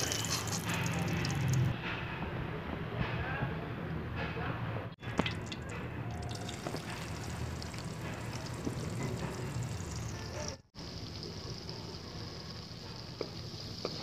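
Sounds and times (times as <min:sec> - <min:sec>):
onion sizzling in hot oil: 0:06.3 - 0:14.0.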